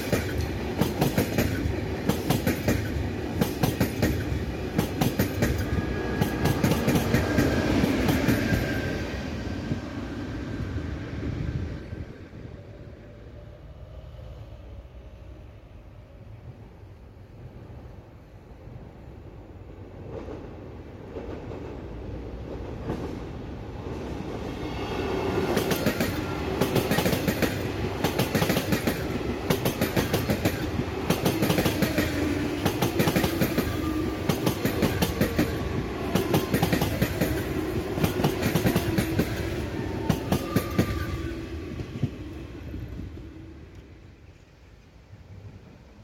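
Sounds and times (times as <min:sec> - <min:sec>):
wheels clicking over rail joints: 0:00.0 - 0:08.7, 0:25.5 - 0:41.1
train passing: 0:00.0 - 0:46.0.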